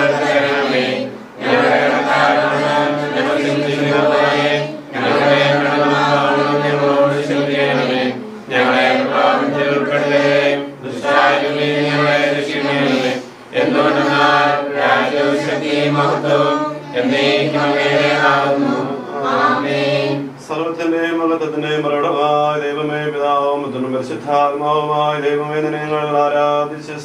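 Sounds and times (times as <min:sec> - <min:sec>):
group singing a hymn: 0:00.0 - 0:20.6.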